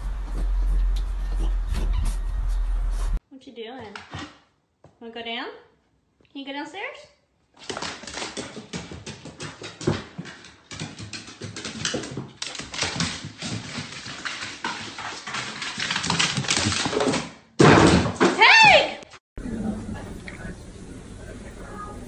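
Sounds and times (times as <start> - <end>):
dog claws clicking on wooden stairs: 7.6 - 17.3.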